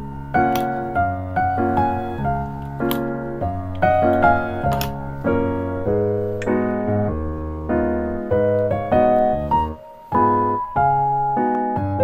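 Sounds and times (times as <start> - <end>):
soft piano chords: 0.0 - 12.0.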